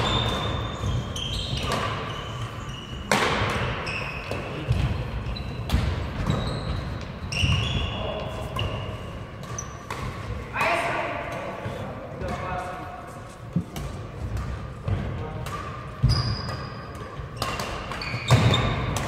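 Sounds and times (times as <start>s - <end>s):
racket hitting shuttlecock: 0.0s - 5.0s, 5.6s - 7.6s, 8.2s - 12.6s, 13.5s - 19.0s
shoes squeaking on court: 0.0s - 10.1s, 16.0s - 19.0s.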